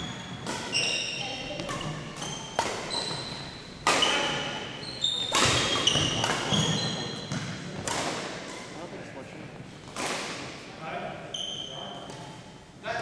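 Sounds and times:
sneakers squeaking: 0:00.0 - 0:08.8, 0:11.2 - 0:12.6
racket hitting shuttlecock: 0:00.2 - 0:08.7, 0:09.8 - 0:10.6.

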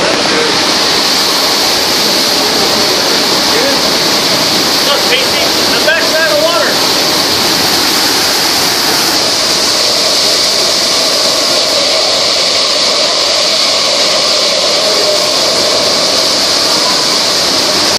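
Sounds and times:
waterfall rushing: 0:00.0 - 0:17.9.

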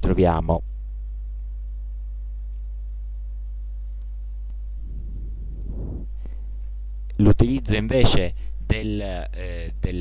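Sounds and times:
electrical hum: 0:00.0 - 0:10.0
faint clicks: 0:03.8 - 0:04.6
low noisy patch: 0:04.4 - 0:07.0.

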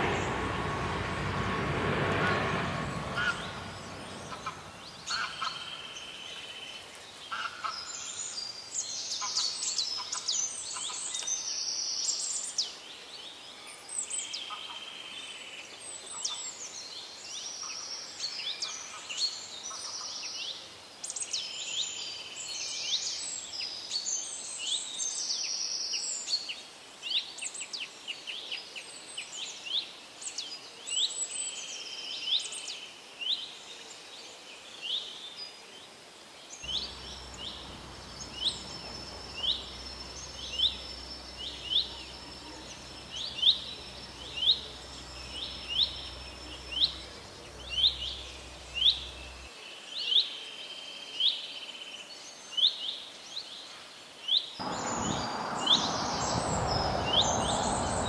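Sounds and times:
small birds chirping and trilling: 0:02.1 - 0:27.8, 0:36.4 - 0:58.0.

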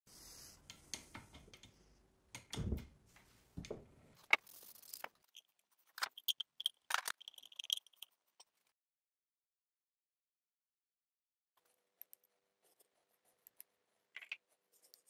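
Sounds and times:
metal parts clicking and knocking: 0:04.2 - 0:08.6.

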